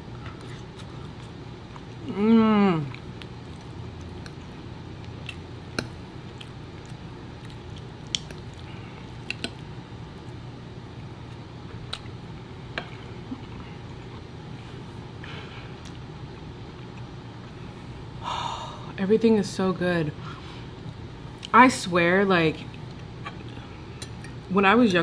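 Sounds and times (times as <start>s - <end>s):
steady low hum: 0.0s - 25.0s
person chewing food: 0.1s - 2.1s, 2.8s - 10.4s, 11.2s - 17.7s.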